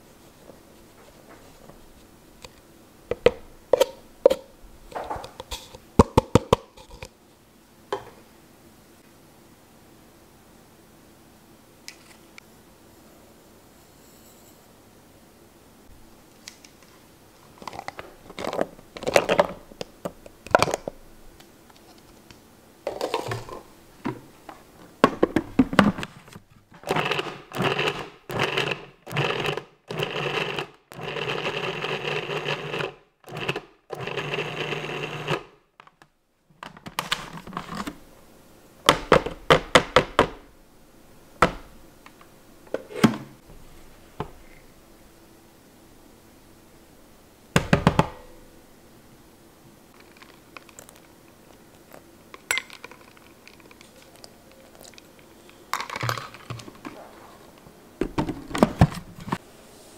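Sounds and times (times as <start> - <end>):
plastic bowl clicks and knocks: 6.0 - 6.7
food processor motor pulsing: 26.8 - 35.5.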